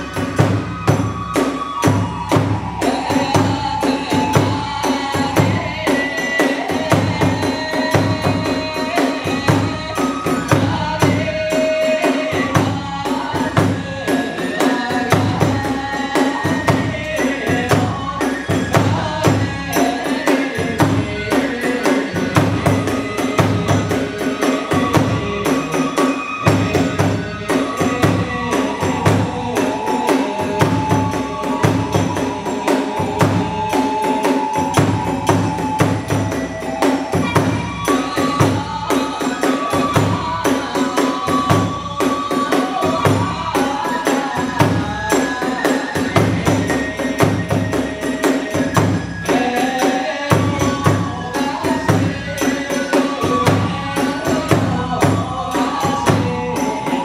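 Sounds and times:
bamboo flute melody: 0.0s - 57.0s
drums beating fast rhythm: 0.0s - 57.0s.

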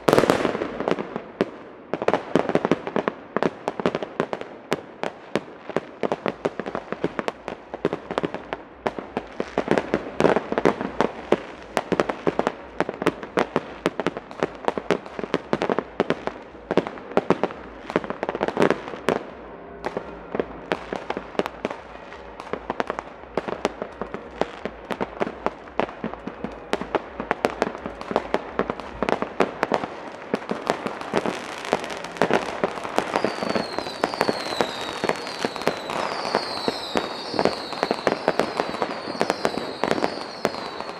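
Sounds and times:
fireworks bangs and crackles: 0.0s - 40.9s.

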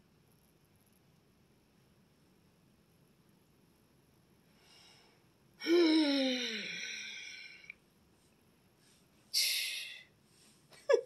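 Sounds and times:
breathy exhale: 4.6s - 7.7s
person's wordless falling voice: 5.6s - 6.7s.

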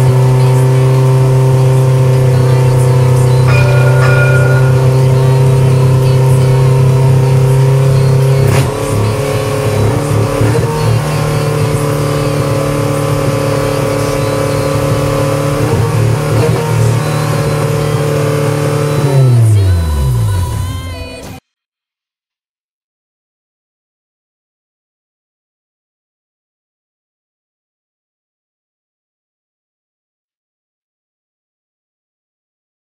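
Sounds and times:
car engine idling: 0.0s - 21.2s.

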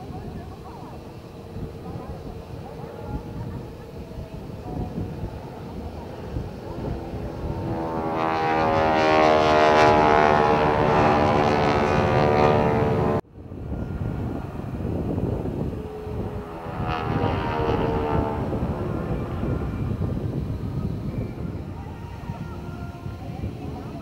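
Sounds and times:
biplane engine and propeller drone: 0.0s - 24.0s.

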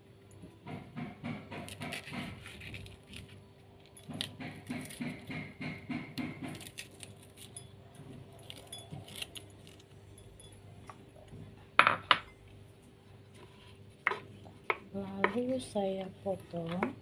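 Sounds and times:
knife cutting vegetable: 1.3s - 3.4s, 4.0s - 7.5s.

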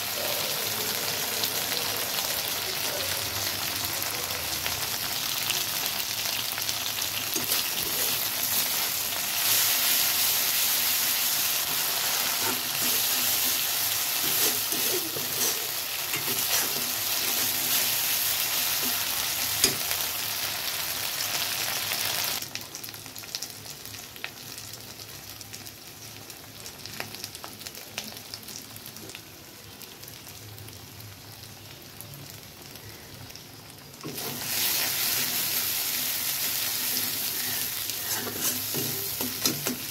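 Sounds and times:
onion sizzling in oil: 0.0s - 39.9s
metal spatula scraping: 7.3s - 10.6s, 11.4s - 19.9s, 36.6s - 39.9s.

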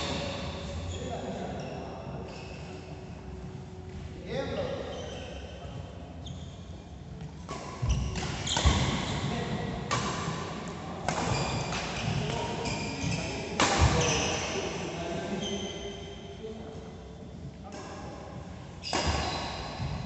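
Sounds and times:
badminton rackets hitting shuttlecock: 9.9s - 12.3s, 13.6s - 14.2s, 18.9s - 19.9s.

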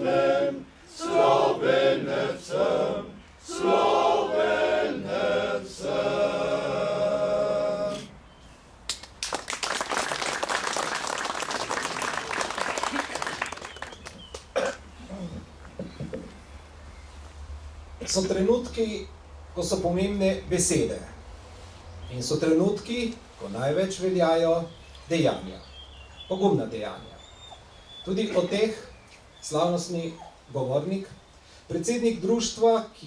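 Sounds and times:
male choir singing a cappella: 0.0s - 8.2s
audience applauding: 8.9s - 14.6s.

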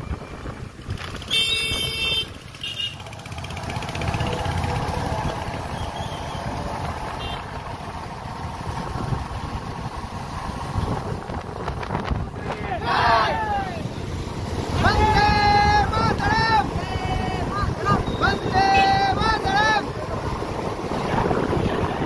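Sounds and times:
motorcycle engines running: 0.0s - 22.0s
vehicle horn honking: 1.3s - 3.1s, 7.2s - 7.4s, 17.9s - 19.0s
wind rush: 3.5s - 22.0s.

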